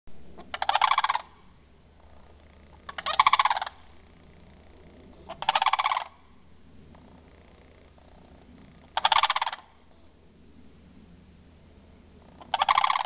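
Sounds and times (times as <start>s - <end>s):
cranes bugling: 0.2s - 10.8s, 11.6s - 13.0s.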